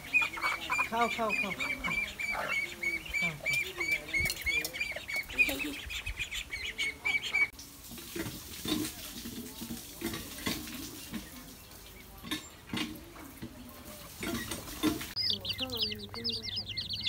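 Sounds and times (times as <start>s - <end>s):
high chirping calls: 0.0s - 7.5s, 14.3s - 17.0s
pigeons pecking taps: 3.2s - 5.6s, 7.9s - 17.0s.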